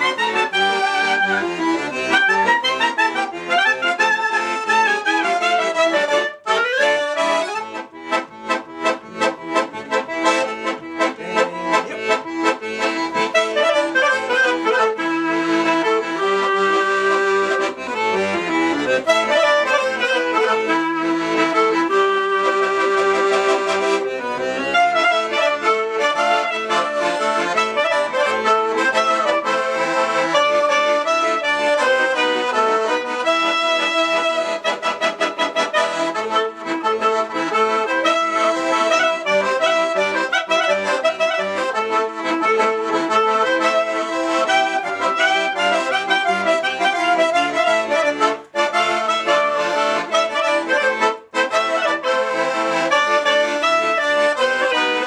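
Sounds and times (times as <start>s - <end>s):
accordion: 0.0s - 55.0s
clarinet melody: 0.0s - 55.0s.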